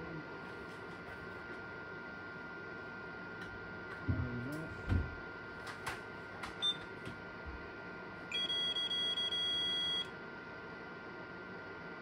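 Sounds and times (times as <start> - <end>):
multimeter continuity beep: 6.6 - 6.9, 8.3 - 10.2.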